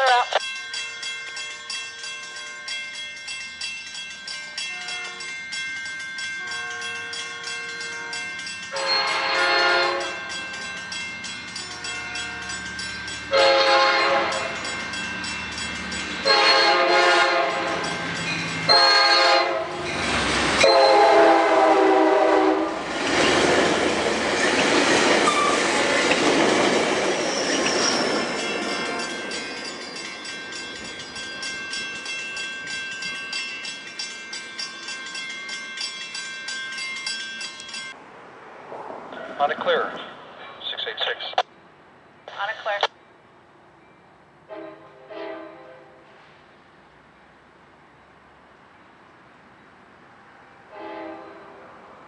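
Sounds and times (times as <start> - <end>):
train passing rumble: 0.0 - 52.0
train air horn blasts: 6.4 - 10.2, 13.3 - 14.5, 16.3 - 17.8, 18.7 - 19.8, 20.6 - 22.8, 44.5 - 46.2, 50.7 - 51.6.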